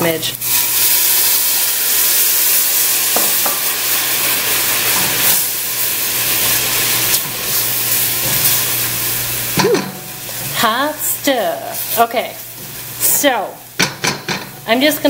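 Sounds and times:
water sizzling in hot pot: 0.0 - 15.0.

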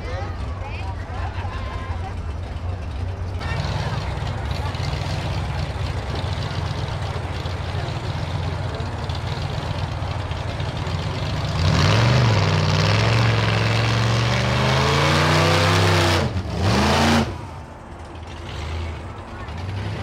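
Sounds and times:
drag car engine revving: 0.0 - 20.0.

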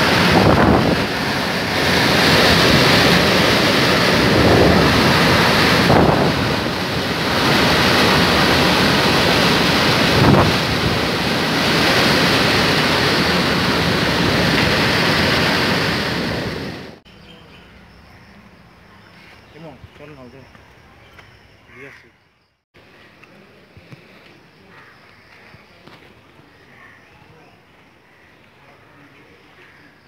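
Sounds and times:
strong wind gusting through trees: 0.0 - 17.0
wind buffeting microphone: 0.0 - 17.0.

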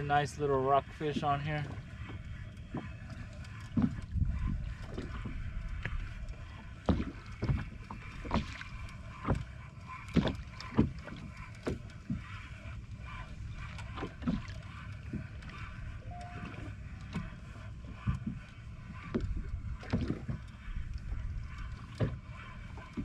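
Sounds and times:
small waves slapping against boat: 0.0 - 23.0.

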